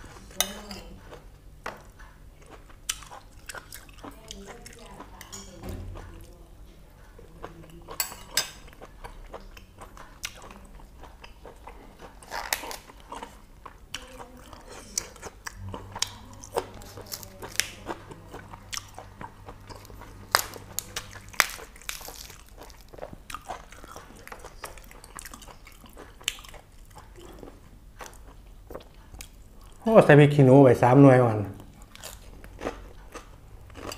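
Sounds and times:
faint low hum: 0.0s - 33.9s
man chewing crunchy food: 1.0s - 5.2s, 8.6s - 29.9s, 31.6s - 33.9s.

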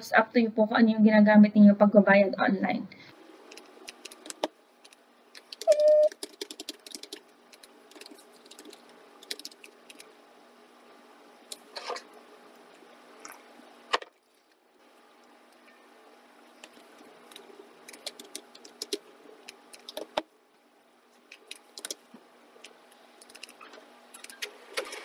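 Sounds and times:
faint steady hum: 0.0s - 25.0s
computer keyboard typing: 3.5s - 10.1s, 16.6s - 20.2s, 21.3s - 22.0s, 23.2s - 25.0s.

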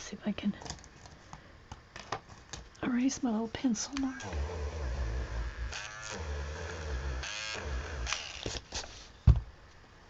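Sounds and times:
electric eraser buzzing: 3.9s - 8.7s.

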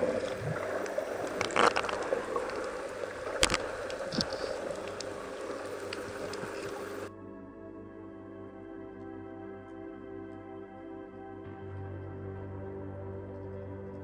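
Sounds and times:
underwater water rush: 0.0s - 7.1s
soft ambient music: 0.0s - 14.0s.

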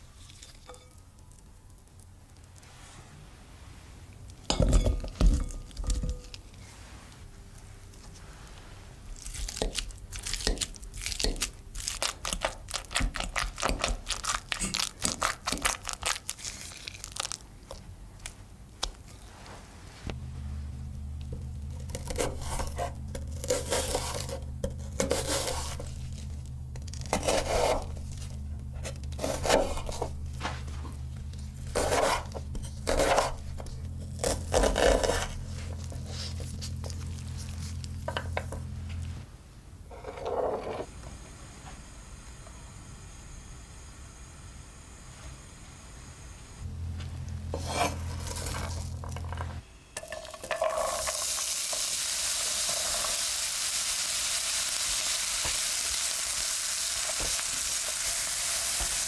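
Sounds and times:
steady low hum: 0.0s - 50.0s
potatoes being mashed: 9.2s - 17.8s, 21.2s - 38.7s.

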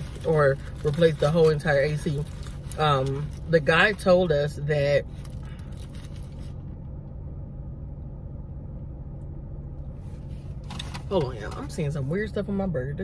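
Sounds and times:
food wrapper rustling: 0.0s - 4.1s, 5.0s - 6.6s
car idling heard inside cabin: 0.0s - 13.0s.

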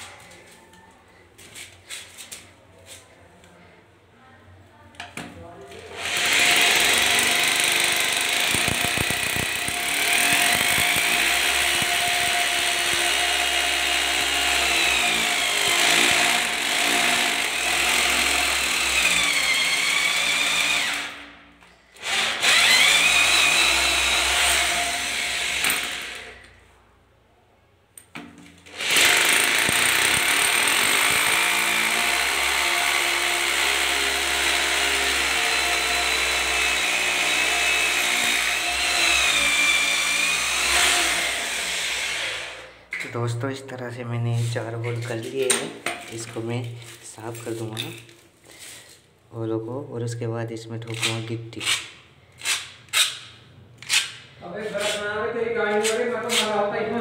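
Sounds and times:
hammer drill boring into tile: 5.9s - 21.2s, 22.0s - 26.4s, 28.7s - 42.7s.

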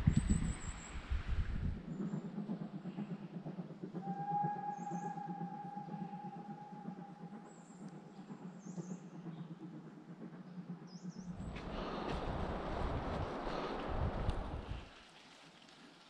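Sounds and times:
steam locomotive whistle: 4.0s - 7.4s
footsteps on woodland path: 11.4s - 15.8s.

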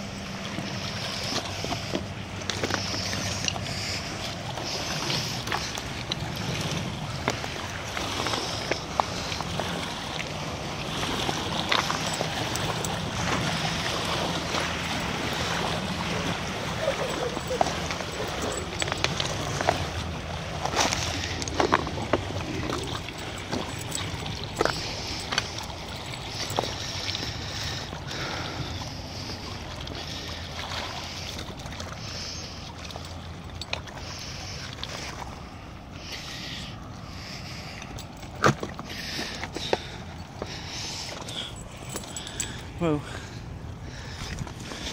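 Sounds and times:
river water lapping on rocks: 0.0s - 44.9s
wind: 0.0s - 44.9s
stones shifting underfoot: 1.8s - 3.6s, 17.5s - 19.9s, 20.7s - 25.6s.

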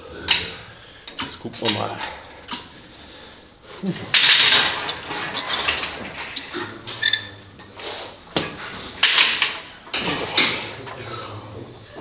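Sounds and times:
metal bar clinking: 4.2s - 7.3s.

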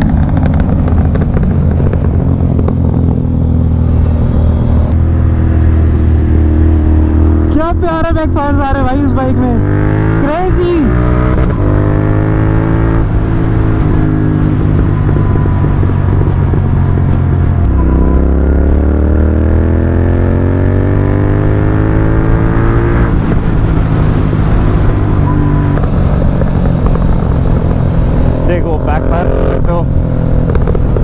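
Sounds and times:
motorcycle engine accelerating: 0.0s - 31.0s.

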